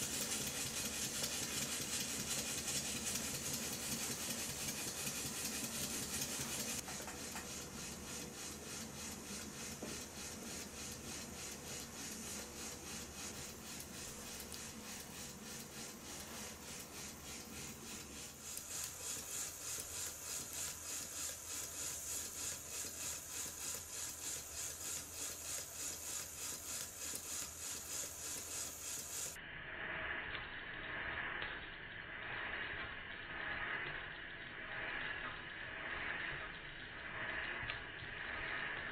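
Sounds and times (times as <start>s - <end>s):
model engine puffing exhaust: 0.0s - 31.4s.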